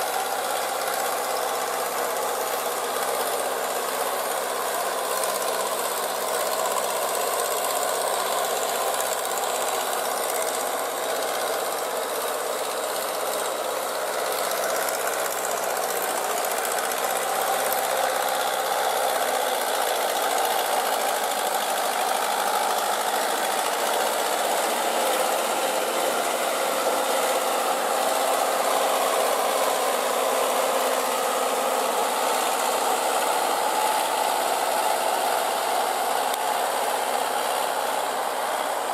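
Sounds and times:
tractor diesel engine knocking: 0.0 - 38.9
wheels churning water: 0.0 - 38.9.

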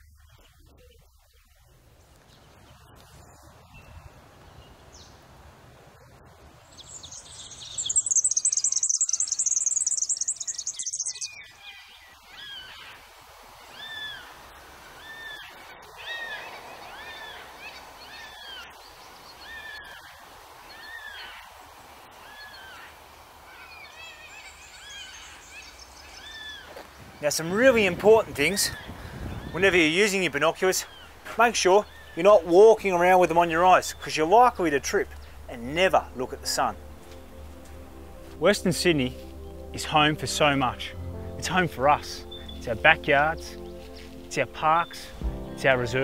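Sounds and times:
rapid high bird trill: 6.8 - 11.6, 28.7 - 36.8.

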